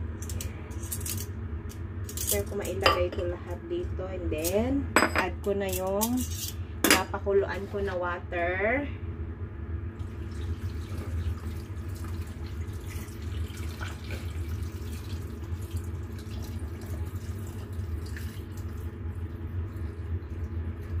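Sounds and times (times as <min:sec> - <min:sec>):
water pouring from kettle: 0:10.0 - 0:21.0.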